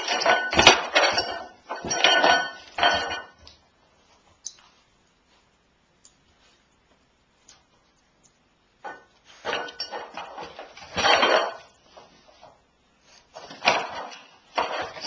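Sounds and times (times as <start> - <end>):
metal pots clattering and scraping: 0.0 - 3.5, 8.9 - 12.5, 13.3 - 15.0.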